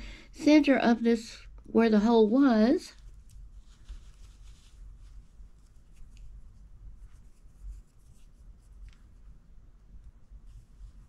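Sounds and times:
knitted hat rustling: 2.5 - 9.4, 10.0 - 11.0.

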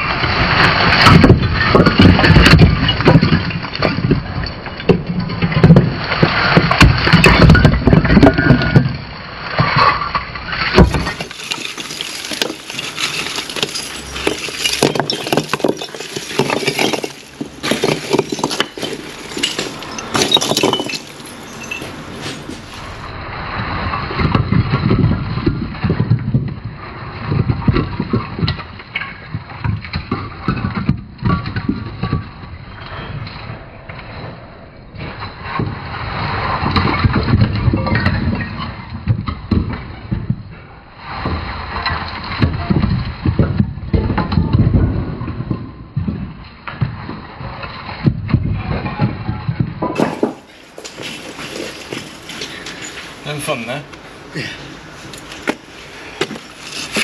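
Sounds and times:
bricks tumbling onto rubble: 0.0 - 32.7, 35.0 - 40.5, 41.1 - 57.0
bricks knocking when dropped: 10.7 - 22.7, 48.0 - 52.8.

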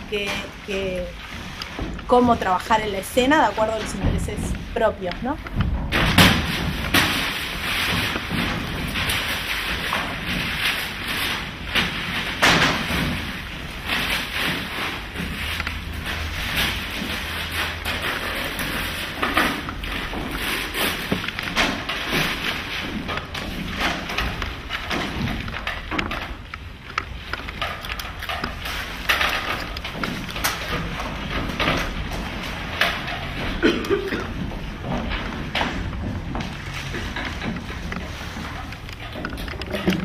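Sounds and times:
knocks and thuds on stage: 5.5 - 10.6.

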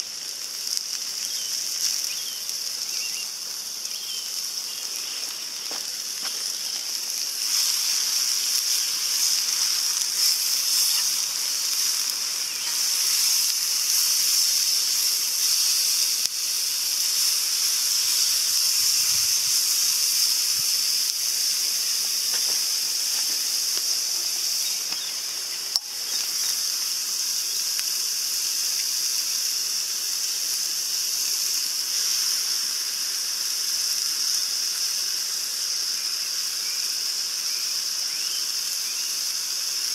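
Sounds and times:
food sizzling in a frying pan: 0.0 - 39.9.

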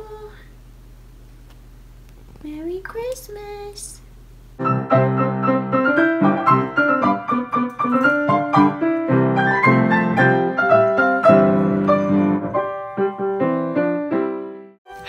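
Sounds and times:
piano music: 4.6 - 15.0.

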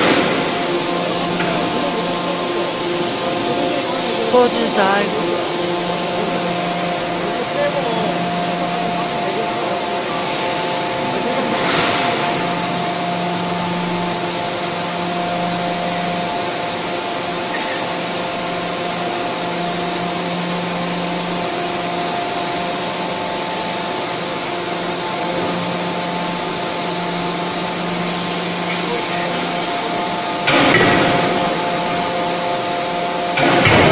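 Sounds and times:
forging hammer machinery drone: 0.0 - 33.9.

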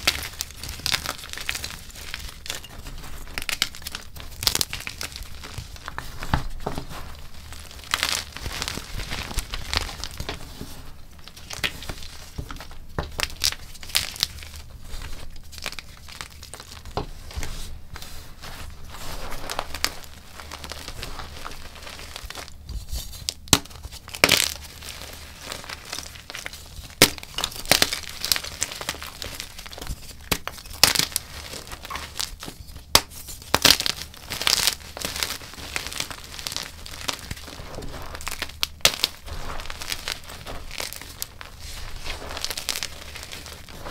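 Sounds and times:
chalk crunching and crackling: 0.0 - 43.9
chalk pieces snapping: 23.1 - 43.9.

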